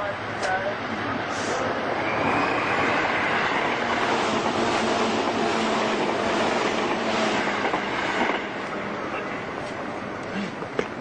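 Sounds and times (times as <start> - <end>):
train rumble and hiss: 0.0 - 11.0.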